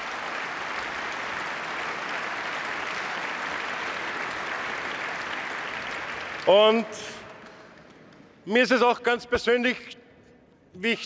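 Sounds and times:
audience applauding: 0:00.0 - 0:08.2.

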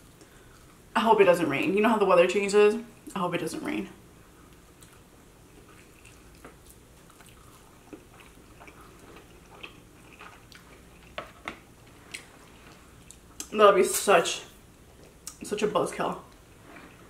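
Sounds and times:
chewing chicken wings: 0:04.6 - 0:13.5.

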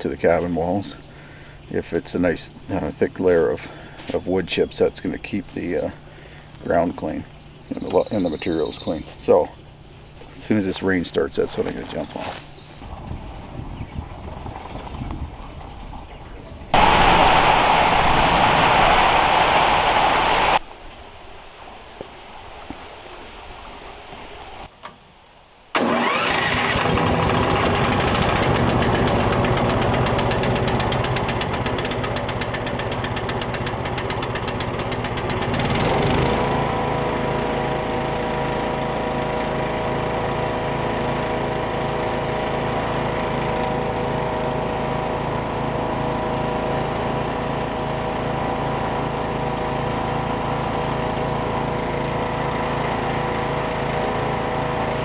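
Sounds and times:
small gas engine running: 0:16.8 - 0:20.6, 0:25.8 - 0:55.0.

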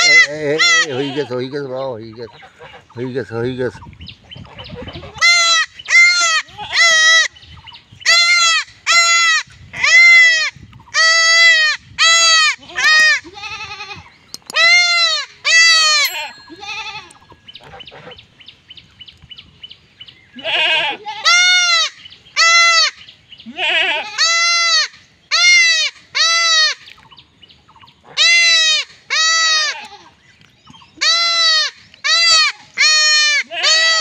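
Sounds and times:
goat kid bleating: 0:00.0 - 0:01.4, 0:04.6 - 0:07.3, 0:08.1 - 0:17.2, 0:20.4 - 0:26.8, 0:28.2 - 0:30.2, 0:31.0 - 0:34.0.

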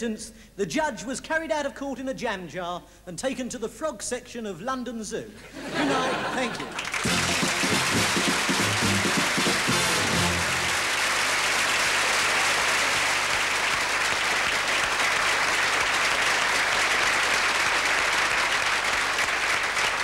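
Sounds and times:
audience applauding: 0:06.6 - 0:20.0.

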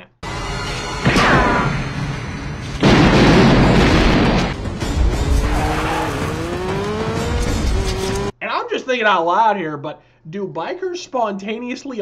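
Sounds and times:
film score music: 0:00.0 - 0:08.3
sharp bang: 0:00.8 - 0:06.4
big explosion blast: 0:01.0 - 0:06.6
engine revving up: 0:04.3 - 0:08.3.

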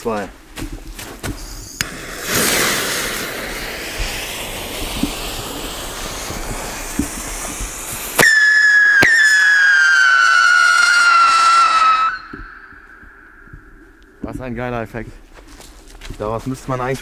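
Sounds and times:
firework fuse hissing and sputtering: 0:01.4 - 0:13.8
high falling firework whistle: 0:01.4 - 0:14.2
firework firing with sharp crack: 0:01.8 - 0:13.4.

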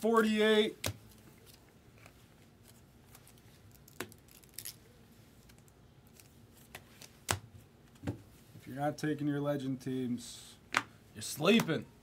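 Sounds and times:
soft card rustle: 0:00.2 - 0:07.3.

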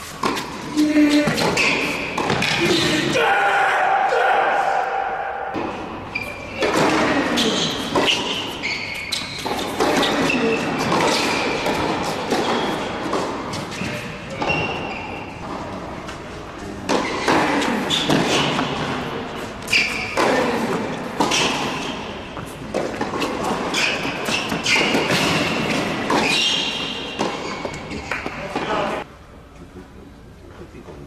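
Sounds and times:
shoes squeaking on court: 0:00.0 - 0:03.0, 0:05.6 - 0:29.0
racquet hitting tennis ball: 0:00.1 - 0:03.2, 0:04.8 - 0:15.6, 0:16.9 - 0:29.0
tennis ball bouncing: 0:00.2 - 0:02.8, 0:06.6 - 0:15.0, 0:16.9 - 0:28.8.

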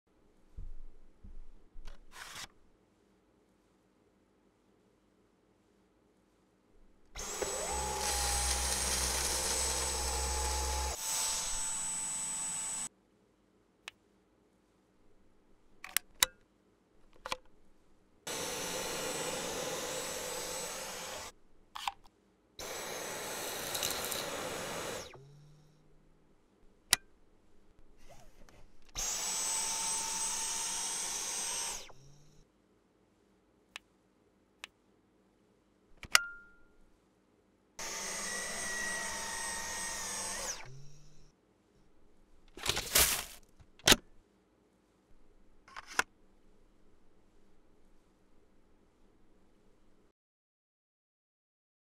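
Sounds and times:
cordless vacuum motor whine: 0:07.2 - 0:12.9, 0:18.3 - 0:21.3, 0:22.6 - 0:25.6, 0:29.0 - 0:32.3, 0:37.8 - 0:41.2.

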